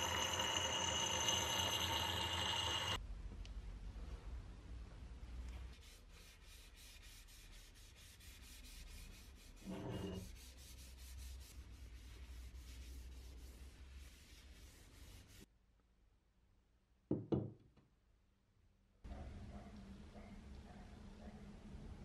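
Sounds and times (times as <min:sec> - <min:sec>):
paper towel rubbing wood: 0:05.8 - 0:15.4.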